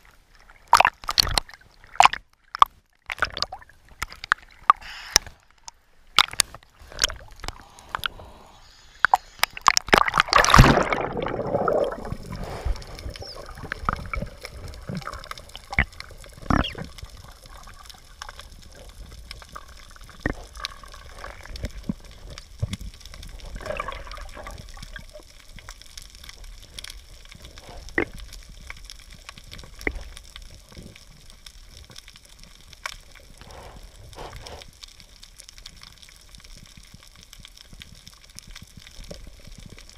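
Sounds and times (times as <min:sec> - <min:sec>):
sharp underwater clicks: 0:00.7 - 0:33.4
water gurgling underwater: 0:09.1 - 0:31.2.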